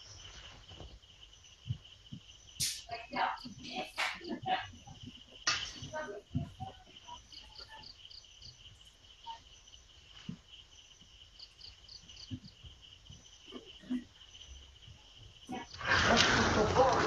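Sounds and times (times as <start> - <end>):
crickets chirping: 0.0 - 17.0.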